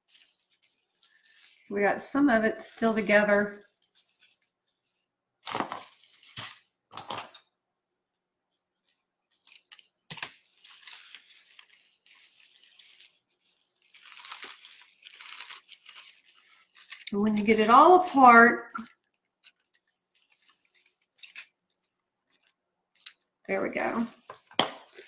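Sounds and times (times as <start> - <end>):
plastic crinkling and rustling: 0.0 - 7.4, 8.5 - 18.2, 18.8 - 25.0
plastic bag ripping: 5.4 - 7.4, 9.4 - 17.2, 23.9 - 25.0.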